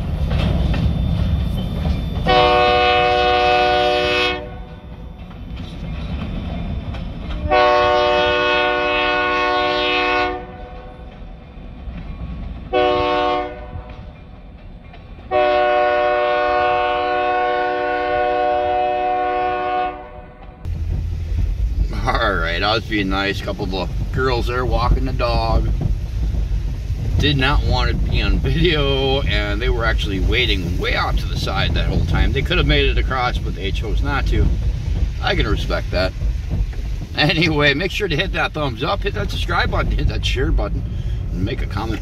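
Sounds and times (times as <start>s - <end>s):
freight train rumbling past: 0.0s - 42.0s
locomotive air horn blasts: 2.2s - 4.7s, 7.4s - 10.9s, 12.7s - 14.0s, 15.3s - 20.4s.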